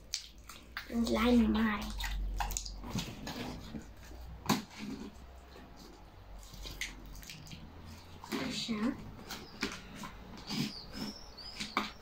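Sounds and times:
slime squelching and clicking: 0.0 - 3.4, 6.4 - 8.6.

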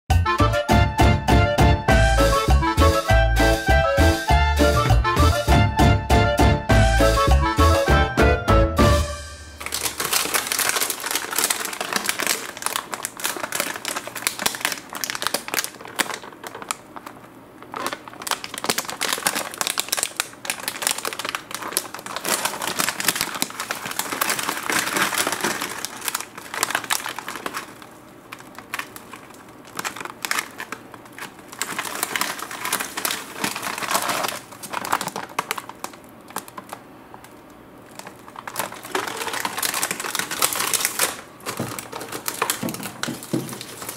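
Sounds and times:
plastic packet crinkling: 9.5 - 43.9.

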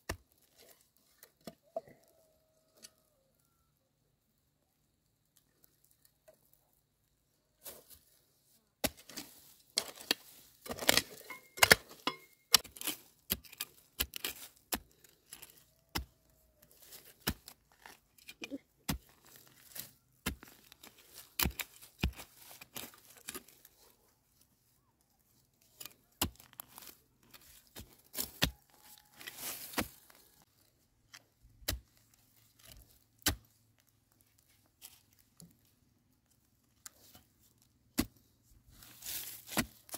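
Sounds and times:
earth and dry grass rustling: 4.8 - 39.9
digging tool striking soil: 8.8 - 23.6, 25.8 - 30.2, 31.6 - 32.0, 32.6 - 33.6, 37.9 - 38.2, 38.8 - 39.9.

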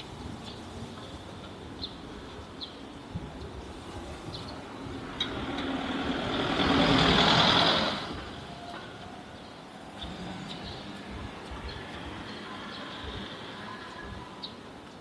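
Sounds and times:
large vehicle passing close: 5.0 - 8.5.

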